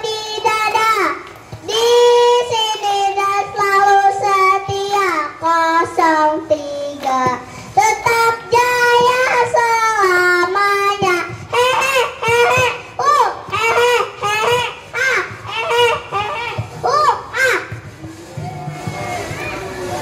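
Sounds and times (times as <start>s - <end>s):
child singing: 0.0s - 17.7s.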